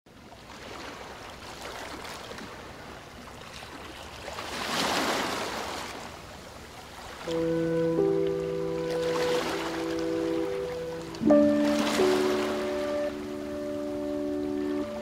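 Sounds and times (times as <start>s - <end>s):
ocean surf washing in: 7.2s - 15.0s
wave breaking: 7.2s - 15.0s.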